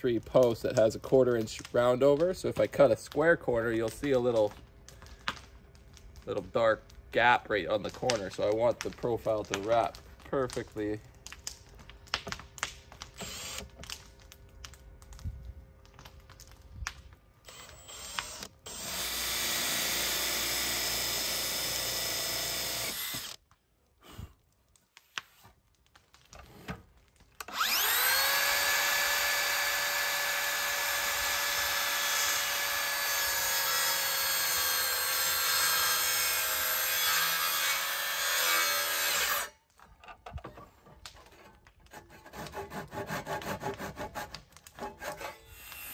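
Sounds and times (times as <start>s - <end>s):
cordless drill boring into wood: 13.2s - 13.7s, 17.5s - 23.4s, 27.4s - 39.5s
miter saw cutting wood: 13.2s - 13.7s, 17.4s - 23.4s, 27.4s - 39.6s, 41.9s - 45.9s.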